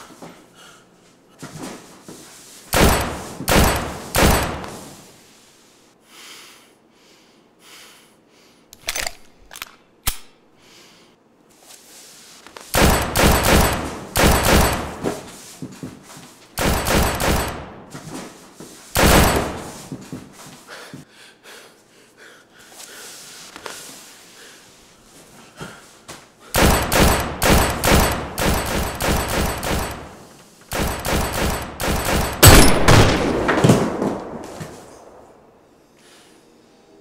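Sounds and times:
gunshots: 2.7 - 5.0, 12.8 - 15.2, 16.6 - 17.9, 19.0 - 19.8, 26.6 - 35.4
rapid gunfire bursts: 2.7 - 5.0, 12.8 - 15.1, 16.6 - 17.8, 19.0 - 19.8, 26.6 - 33.6.

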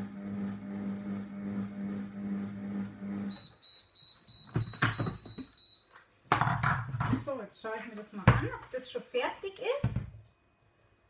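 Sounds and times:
food processor motor humming: 0.0 - 3.3
high beeps: 3.3 - 5.9.

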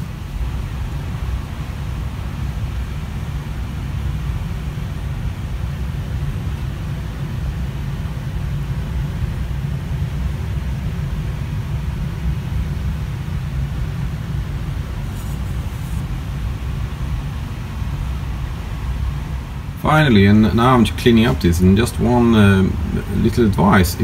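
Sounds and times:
low background rumble: 0.0 - 24.0.

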